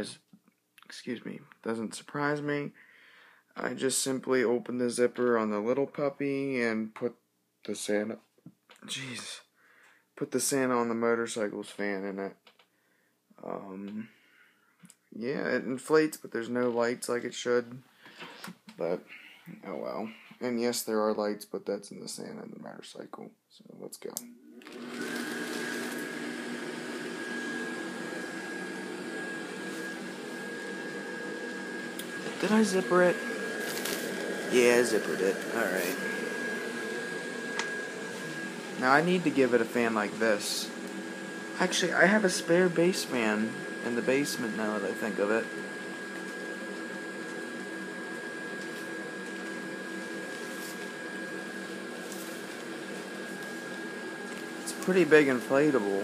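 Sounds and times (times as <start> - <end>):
electric blower fan humming: 24.4 - 56.0.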